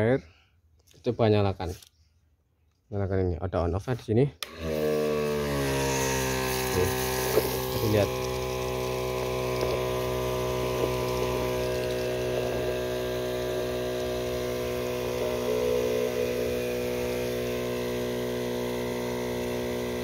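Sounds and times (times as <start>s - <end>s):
electric pump humming: 4.4s - 20.0s
water spraying from wand: 5.7s - 20.0s.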